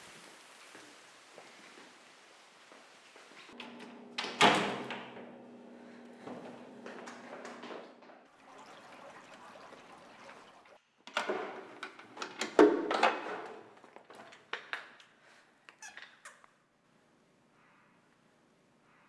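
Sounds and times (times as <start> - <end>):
faint steady hiss: 0.0 - 3.6
clicks and knocks of objects: 11.0 - 16.5.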